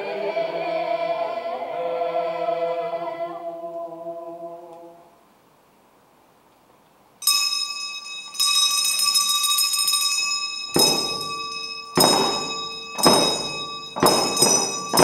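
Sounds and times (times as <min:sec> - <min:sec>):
bell struck and ringing: 0:07.2 - 0:15.0
low drum thuds: 0:12.0 - 0:15.0.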